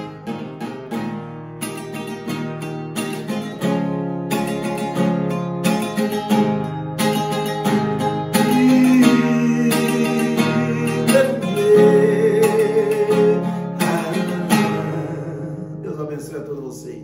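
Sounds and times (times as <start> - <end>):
classical guitar strumming: 0.0 - 17.0
man singing a hymn: 8.4 - 17.0.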